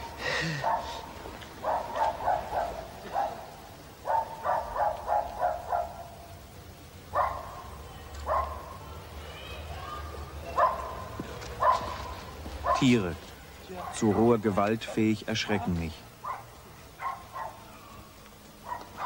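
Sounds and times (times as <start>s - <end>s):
dog barking: 0.5s - 6.2s, 7.1s - 7.7s, 8.3s - 8.7s, 10.6s - 13.0s, 13.8s - 17.7s, 18.6s - 19.0s.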